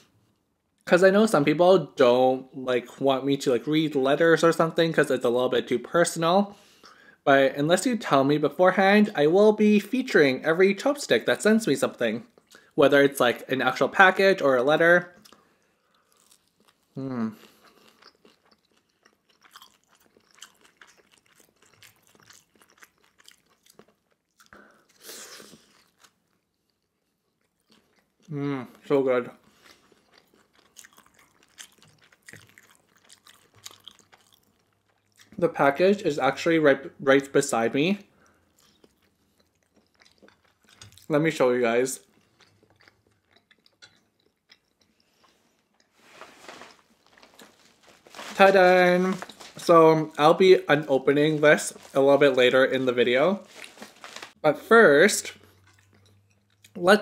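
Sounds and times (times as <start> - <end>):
close chewing mouth sounds: 15.2 - 28.8, 29.4 - 35.4, 38.1 - 41.2, 42.0 - 46.0, 55.3 - 56.8
paper envelope rustling: 46.0 - 49.7, 51.2 - 52.5, 53.3 - 54.4.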